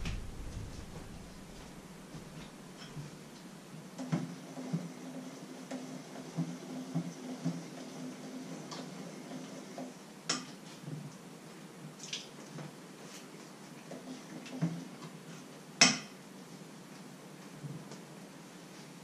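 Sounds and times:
low steady hum: 0.0s - 4.0s.

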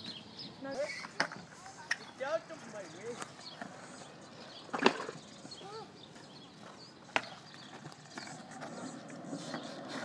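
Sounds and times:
skateboard rolling on concrete: 0.0s - 10.0s
skateboard wheels clacking over joints: 3.1s - 10.0s.

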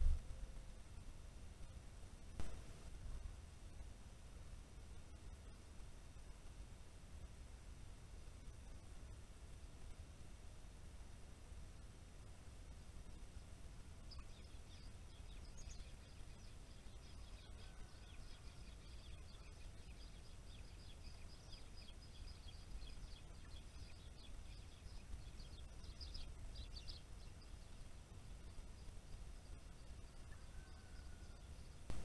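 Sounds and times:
low background rumble: 0.0s - 32.0s
songbird twittering: 14.0s - 32.0s.

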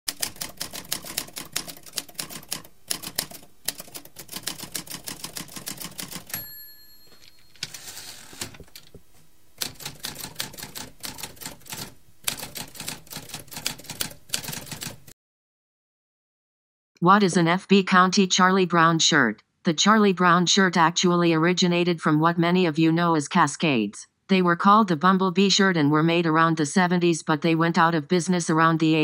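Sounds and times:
typewriter key clacks: 0.1s - 6.4s
typewriter bell ring: 5.5s - 8.6s
typewriter carriage slide: 7.3s - 9.0s.

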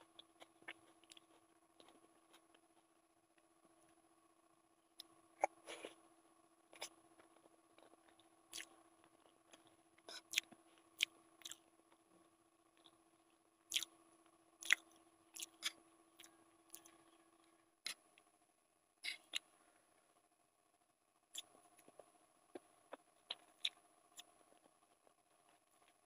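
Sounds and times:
chewing: 0.0s - 2.9s
faint steady hum: 0.0s - 26.0s.

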